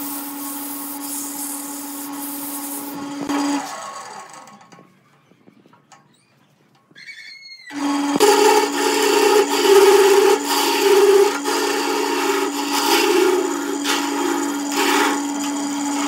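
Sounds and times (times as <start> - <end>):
wood lathe motor humming: 0.0 - 4.5, 7.7 - 16.0
chisel scraping spinning wood: 7.7 - 16.0.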